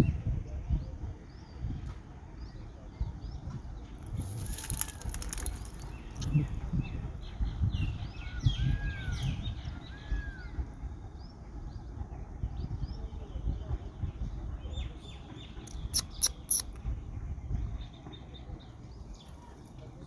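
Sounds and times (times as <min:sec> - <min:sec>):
low microphone rumble: 0:00.0 - 0:15.9, 0:16.7 - 0:20.0
small birds chirping: 0:00.7 - 0:20.0
arched bird whistles: 0:15.7 - 0:16.7.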